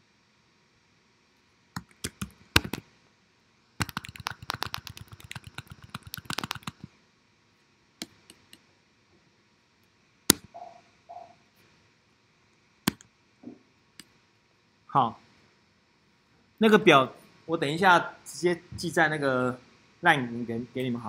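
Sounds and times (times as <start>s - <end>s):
keyboard typing: 1.8s - 2.8s, 3.8s - 6.9s.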